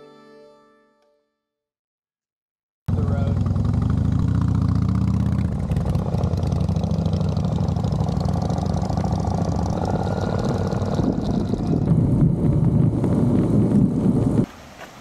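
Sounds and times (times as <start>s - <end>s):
motorcycle engine idling: 2.9s - 14.0s.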